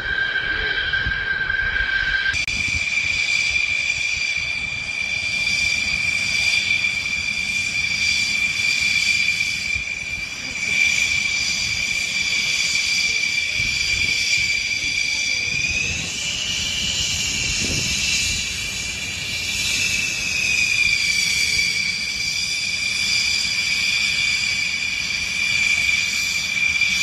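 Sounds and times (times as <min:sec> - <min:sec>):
low rumble: 0:00.0 - 0:03.0
jet engines whining: 0:00.0 - 0:27.0.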